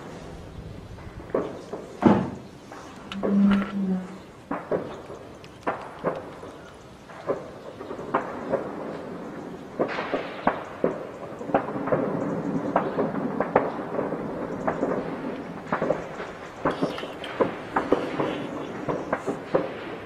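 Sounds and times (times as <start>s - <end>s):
gunshots: 7.2s - 20.0s.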